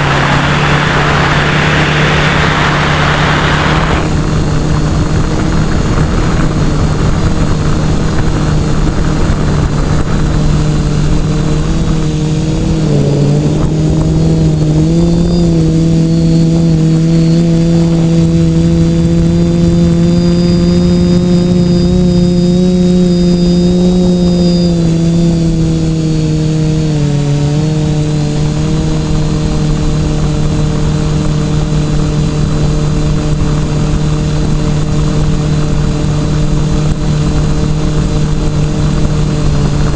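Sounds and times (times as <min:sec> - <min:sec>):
quadcopter rotors humming: 0:00.0 - 0:39.9.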